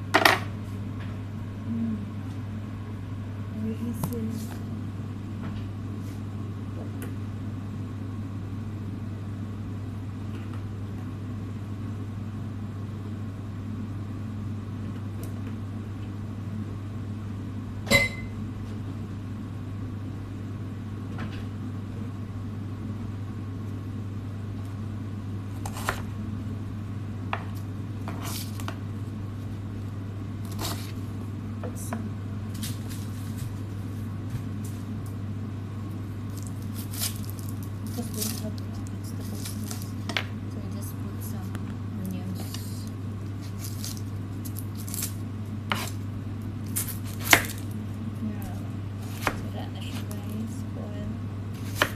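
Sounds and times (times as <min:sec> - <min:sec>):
kitchen hum: 0:00.0 - 0:51.9.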